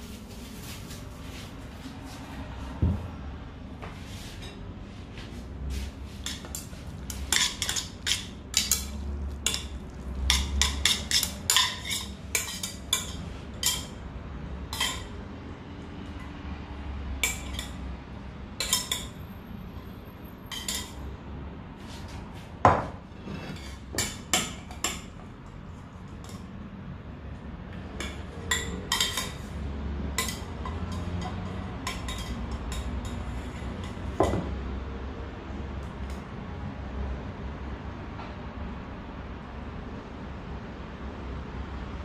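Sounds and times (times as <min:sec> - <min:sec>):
cookware and utensils clinking: 0:06.2 - 0:14.0, 0:14.6 - 0:15.2, 0:17.2 - 0:17.8, 0:18.6 - 0:19.2, 0:20.5 - 0:21.1, 0:22.7 - 0:25.2, 0:27.9 - 0:34.6.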